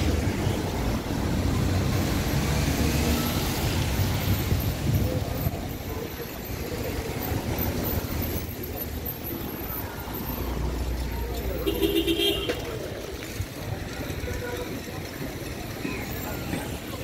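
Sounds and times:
tyres hissing on wet road: 0.0 - 5.4
engine rumble of passing vehicles: 0.0 - 17.0.

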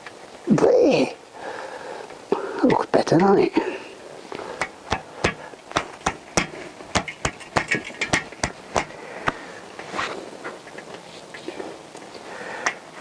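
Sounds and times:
sharp clicks and knocks: 4.6 - 9.4.

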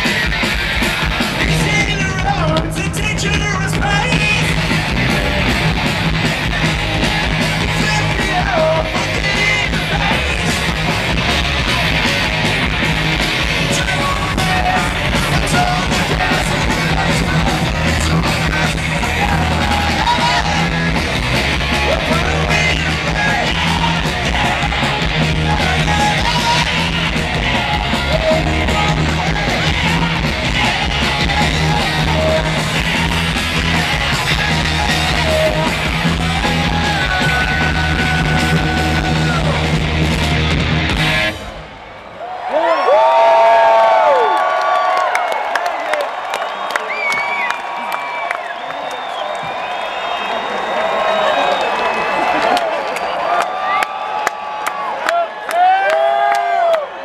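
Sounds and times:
punk rock band playing: 0.0 - 42.1
person yelling singing: 7.7 - 10.6, 13.6 - 21.0, 21.7 - 39.7.

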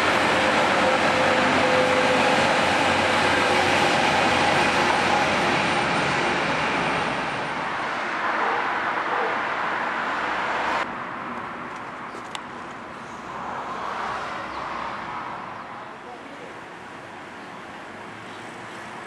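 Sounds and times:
train passing close by: 0.0 - 10.9, 16.3 - 19.0.

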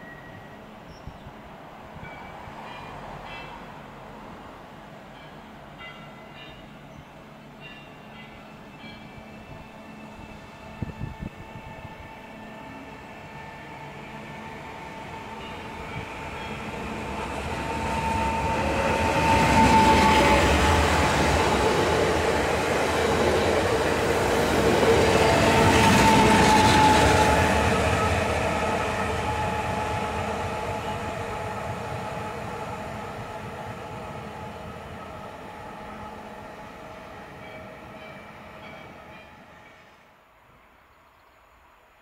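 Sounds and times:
train wheels rumbling on rails: 7.7 - 39.5.

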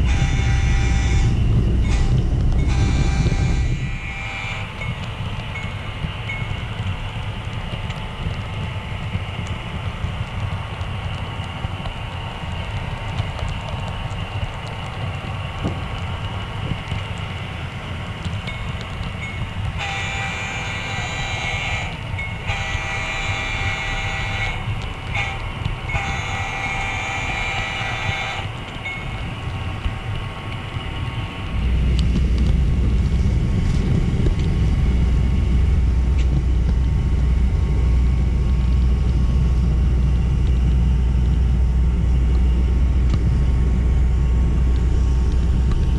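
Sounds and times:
train horn blasts: 0.0 - 5.0, 19.7 - 28.6
deep rumble: 0.0 - 45.9
model train rumbling: 0.0 - 45.9.

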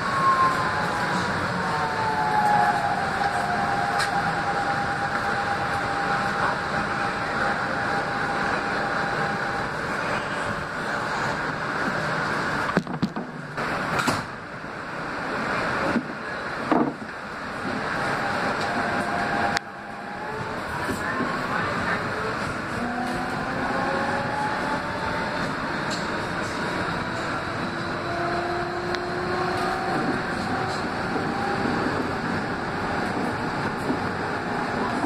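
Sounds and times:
subway car wheels on rails: 0.0 - 35.0.

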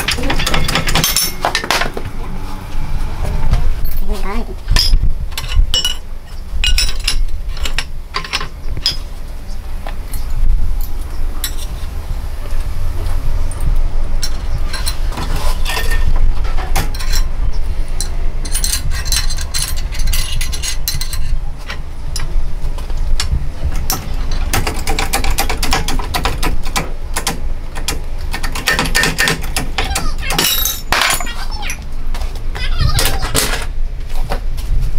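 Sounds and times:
metal parts clinking: 0.0 - 2.0, 4.8 - 9.0, 10.0 - 11.8, 14.2 - 17.3, 18.0 - 22.3, 28.6 - 31.8
steady low hum: 0.0 - 34.9.

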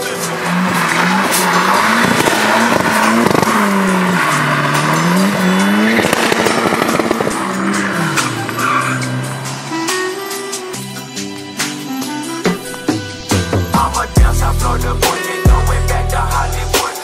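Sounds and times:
tyres squealing: 0.0 - 11.0
car engine revving: 0.0 - 16.8.

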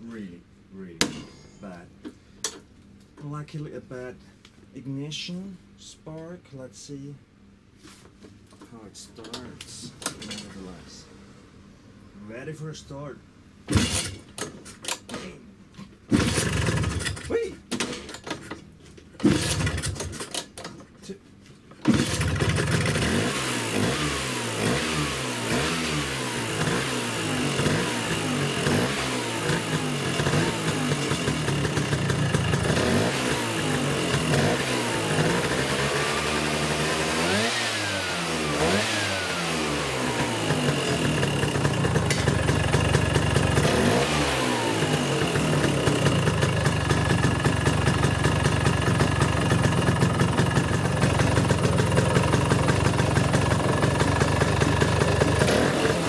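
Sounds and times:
scooter engine revving and idling: 13.7 - 14.2, 16.1 - 17.3, 19.2 - 20.2, 21.8 - 56.0.

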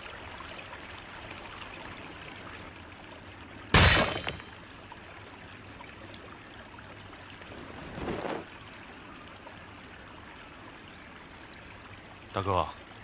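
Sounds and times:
stream trickling: 0.0 - 13.0
sword stabbing into stone: 3.8 - 4.4.

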